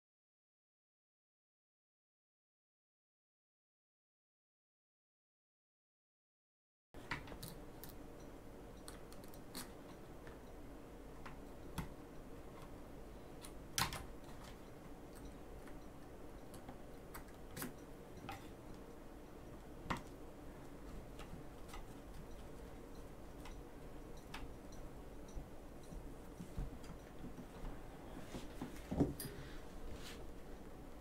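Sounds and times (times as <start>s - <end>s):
faint steady hum: 7.0s - 31.0s.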